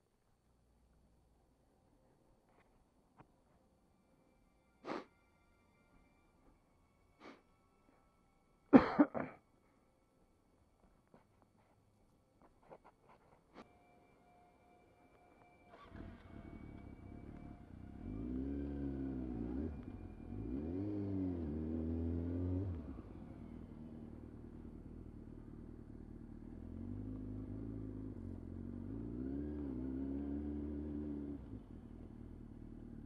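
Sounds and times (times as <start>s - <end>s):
motorcycle engine revving: 15.8s - 33.0s.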